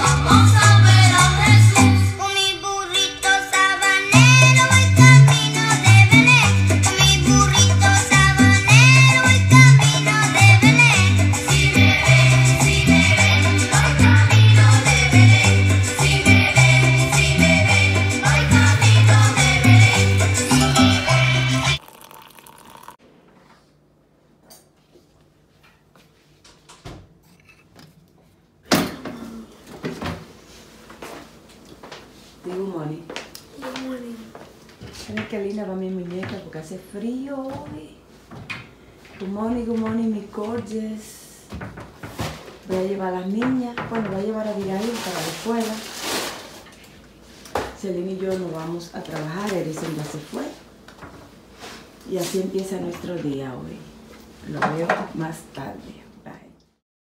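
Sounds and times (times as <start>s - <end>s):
intro music: 4.1s - 21.8s
stepping bass line: 4.2s - 21.8s.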